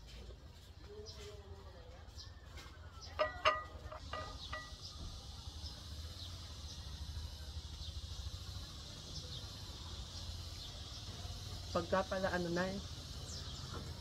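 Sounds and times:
dishes clinking: 0:03.1 - 0:04.9.

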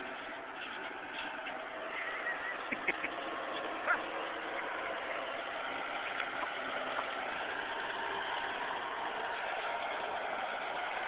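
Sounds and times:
backhoe engine running: 0:00.0 - 0:11.0.

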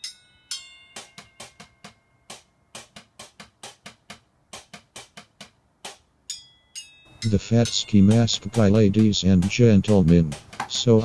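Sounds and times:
chopsticks tapping on buckets and pots: 0:07.2 - 0:11.0.

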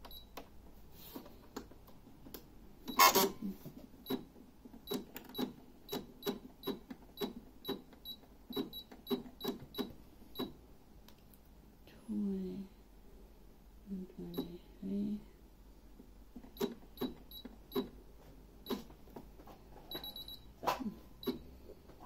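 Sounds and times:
sewing machine button beeps: 0:02.9 - 0:03.3, 0:16.6 - 0:17.9, 0:19.9 - 0:20.5, 0:21.2 - 0:21.4.

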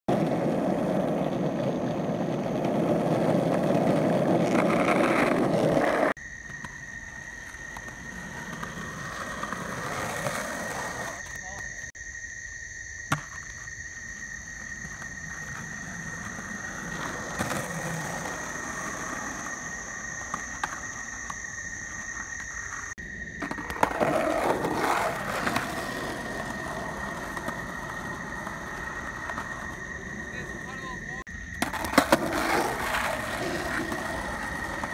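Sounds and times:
skateboard wheels rolling on asphalt: 0:00.0 - 0:34.9
skateboard clacks: 0:13.1 - 0:13.7, 0:14.8 - 0:34.9.

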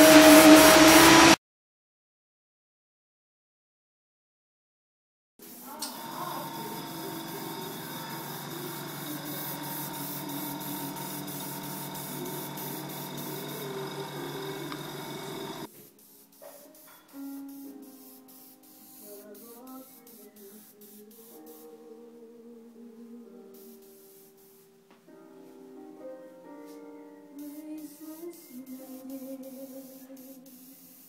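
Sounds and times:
airbrush hissing: 0:05.4 - 0:21.7, 0:27.4 - 0:31.0
low hum: 0:06.0 - 0:15.7
soft background music: 0:15.7 - 0:31.0.

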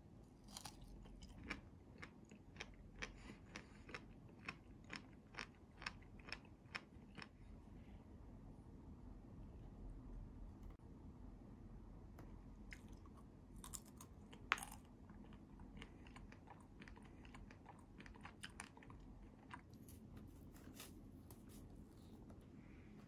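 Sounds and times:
chewing and crunching: 0:00.4 - 0:07.4, 0:12.7 - 0:22.1.

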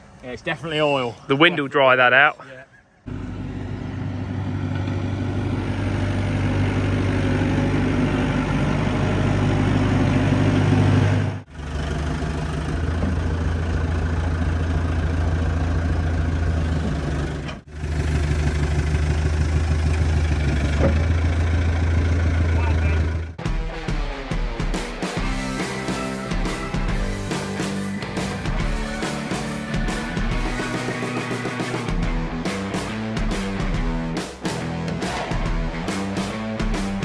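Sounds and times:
diesel engine running: 0:03.0 - 0:23.6.

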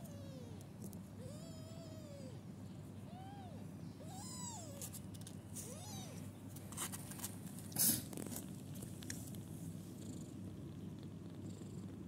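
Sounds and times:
rustling: 0:06.5 - 0:09.8.

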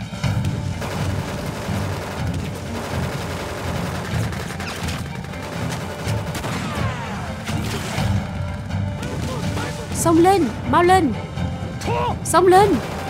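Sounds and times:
rifles and submachine guns firing: 0:00.0 - 0:09.6, 0:12.7 - 0:13.0
background music: 0:00.0 - 0:13.0.

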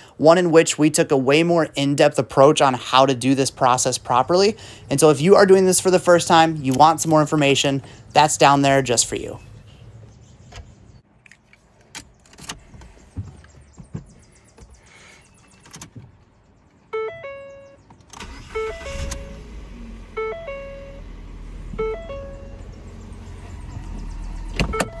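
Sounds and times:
car engine idling: 0:01.0 - 0:11.0, 0:16.3 - 0:25.0
two-note warning chime: 0:17.0 - 0:17.8.

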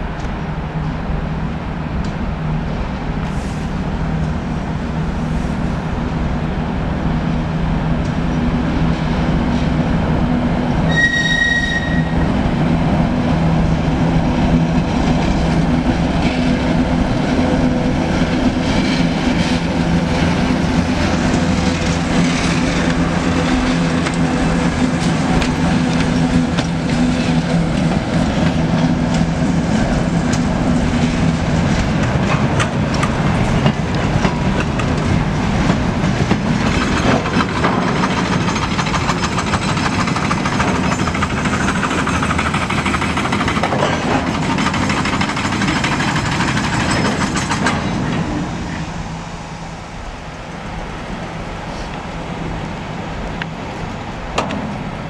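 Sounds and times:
locomotive diesel engine drone: 0:00.0 - 0:55.0
train wheels clicking over rails: 0:11.8 - 0:49.1, 0:51.5 - 0:55.0.

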